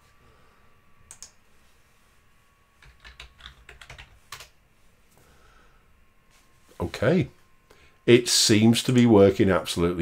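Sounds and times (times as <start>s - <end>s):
keyboard typing: 1.1s - 1.4s, 2.8s - 4.5s.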